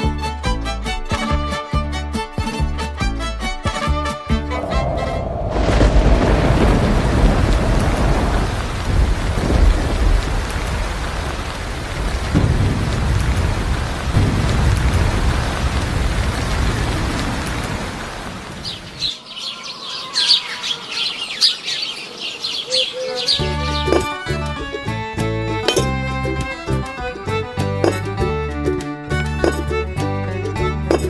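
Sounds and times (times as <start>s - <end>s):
low rolling thunder: 4.4s - 19.1s
rain: 4.4s - 28.2s, 29.2s - 31.0s
birds chirping: 16.4s - 25.9s.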